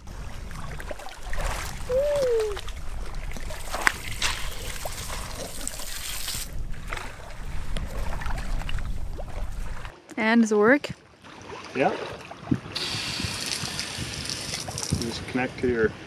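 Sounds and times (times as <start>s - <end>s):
water trickling and splashing: 0.0s - 10.0s, 10.9s - 16.0s.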